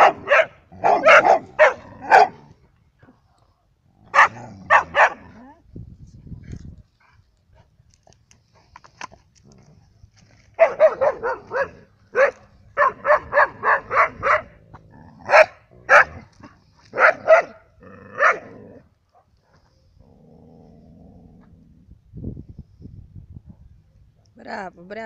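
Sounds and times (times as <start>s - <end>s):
dog barking: 0.0s - 2.4s, 4.1s - 5.2s, 10.6s - 14.6s, 15.3s - 16.3s, 16.9s - 17.6s, 18.2s - 18.5s.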